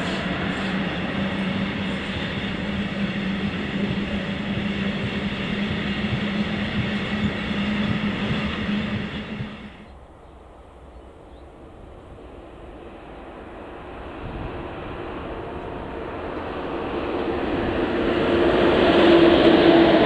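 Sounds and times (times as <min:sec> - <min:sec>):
low hum: 0:00.0 - 0:09.9
train wheels rumbling on rails: 0:00.0 - 0:10.0, 0:11.7 - 0:20.0.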